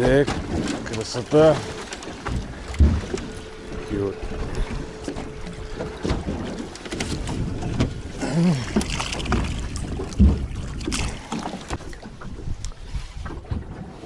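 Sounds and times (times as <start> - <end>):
knocks and clicks in a boat: 0.0 - 14.0
heavy thump: 1.4 - 8.0.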